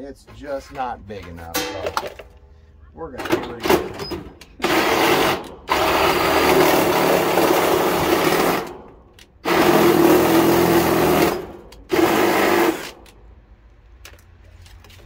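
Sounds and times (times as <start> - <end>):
cordless drill cutting sheet metal: 3.6 - 8.8, 9.4 - 13.1.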